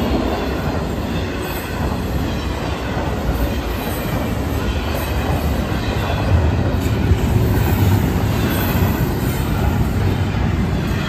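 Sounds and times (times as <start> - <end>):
freight train wheels rumbling: 0.0 - 11.0.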